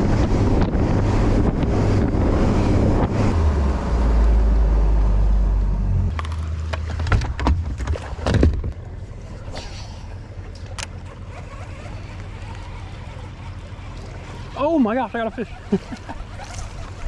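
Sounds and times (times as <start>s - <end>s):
wind buffeting microphone: 0.0s - 5.0s
outboard motor rumbling: 0.0s - 17.0s.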